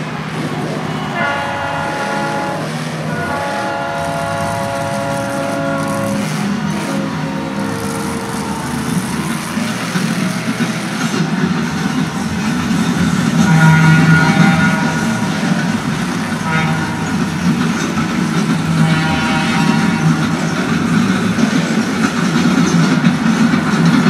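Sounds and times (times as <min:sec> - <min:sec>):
truck engine revving: 0:00.0 - 0:24.0
horn-like tones: 0:01.0 - 0:11.1, 0:13.4 - 0:17.5, 0:18.7 - 0:20.3.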